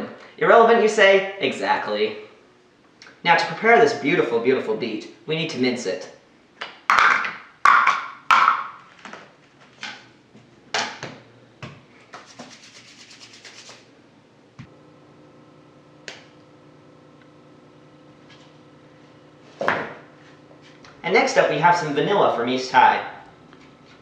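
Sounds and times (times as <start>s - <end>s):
steady low hum: 9.3s - 24.0s
hands rubbing together: 12.2s - 13.9s.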